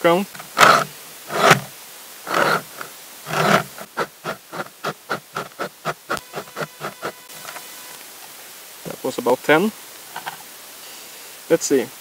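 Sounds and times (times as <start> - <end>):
axe scraping on grindstone: 0.4 - 1.7, 2.3 - 7.7.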